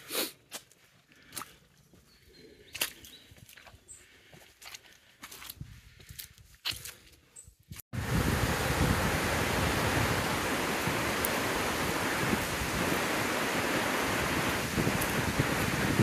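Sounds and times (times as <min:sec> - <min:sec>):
faint footsteps on path: 0:00.3 - 0:07.8
water rushing over spillway: 0:08.0 - 0:16.0.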